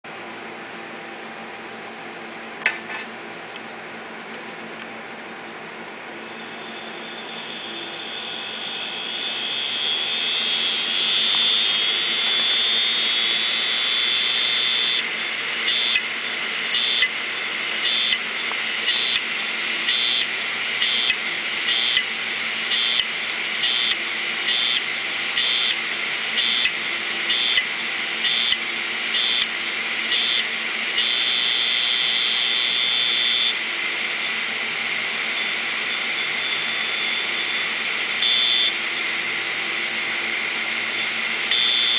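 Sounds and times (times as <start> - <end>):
hard drive high-pitched whine: 4.2 - 41.9
hard drive head pulsing: 6.2 - 41.9.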